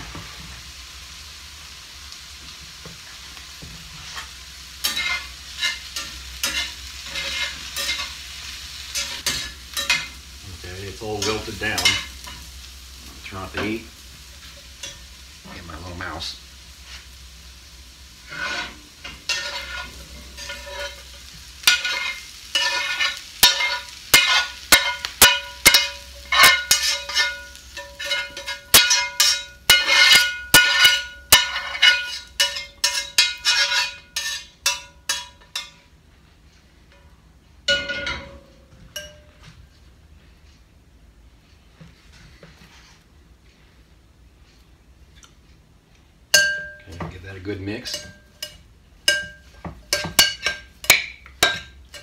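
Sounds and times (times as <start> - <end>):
spatula scraping a skillet: 3.0 - 10.2, 10.9 - 15.4, 16.7 - 37.0, 41.9 - 43.8, 47.2 - 52.0
spatula knocking ringing pan: 21.7 - 35.8, 37.7 - 39.4, 46.3 - 47.1, 47.8 - 52.0.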